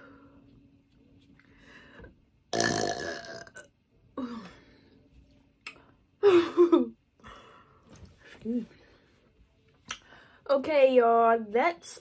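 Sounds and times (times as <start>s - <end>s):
woman burping: 2.5s - 4.5s.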